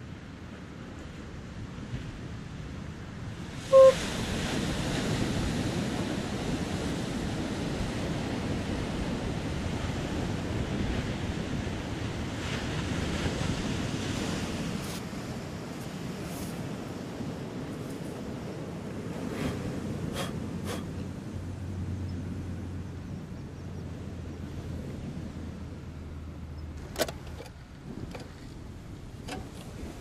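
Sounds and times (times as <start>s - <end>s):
surf on beach: 0.0s - 30.0s
wind buffeting microphone: 1.2s - 30.0s.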